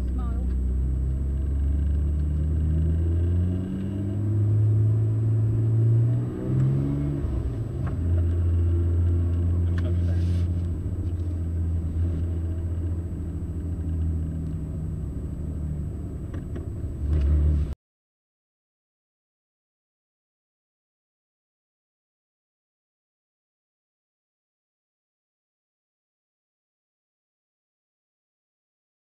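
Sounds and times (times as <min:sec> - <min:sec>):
car engine running: 0:00.0 - 0:17.7.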